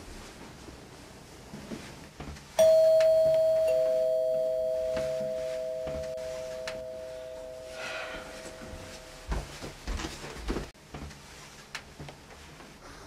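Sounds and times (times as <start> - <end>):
two-tone doorbell chime: 2.6 - 9.6.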